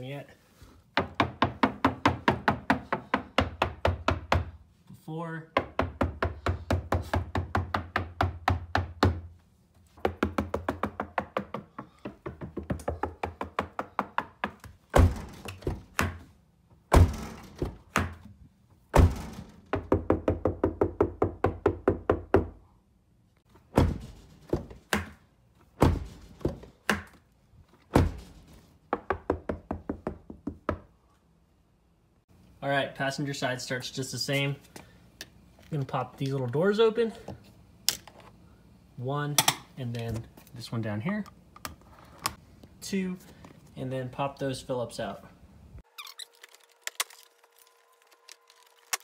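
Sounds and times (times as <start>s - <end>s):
knuckles rapping on car door: 10.0s - 16.2s
fist thumping on metal door: 14.9s - 16.2s, 16.9s - 18.2s, 18.9s - 22.4s, 23.7s - 25.1s, 25.8s - 26.6s, 27.9s - 28.5s.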